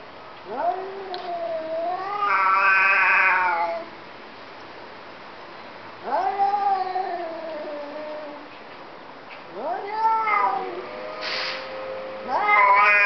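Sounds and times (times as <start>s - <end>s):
cats yowling: 0.5s - 3.9s, 6.0s - 8.5s, 9.5s - 11.0s, 12.2s - 13.0s.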